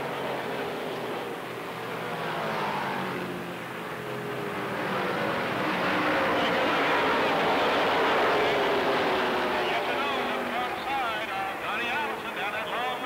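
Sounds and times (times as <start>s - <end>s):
racing car engines passing: 0.0s - 13.0s.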